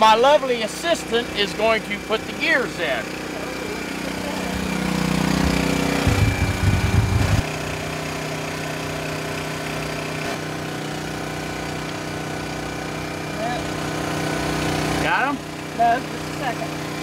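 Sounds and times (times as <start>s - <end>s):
small engine droning: 0.0s - 17.0s
rough low rumble: 5.4s - 7.4s.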